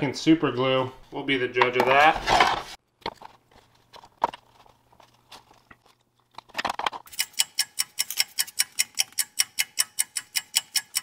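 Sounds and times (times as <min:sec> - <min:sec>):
plastic parts clicking and rustling: 0:01.6 - 0:09.3
fast clock ticking: 0:07.1 - 0:11.0.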